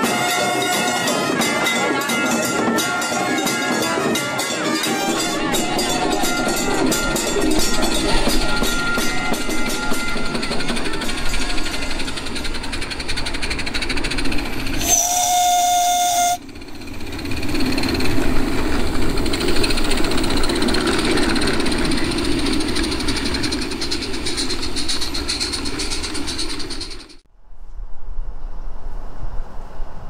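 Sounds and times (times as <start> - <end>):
steam whistle: 0.0 - 7.8, 14.8 - 16.5
steam locomotive chuffing: 0.0 - 27.3.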